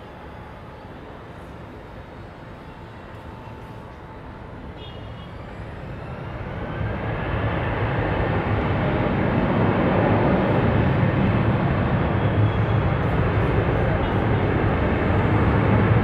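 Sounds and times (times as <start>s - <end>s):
jet engines roaring: 5.5s - 16.0s.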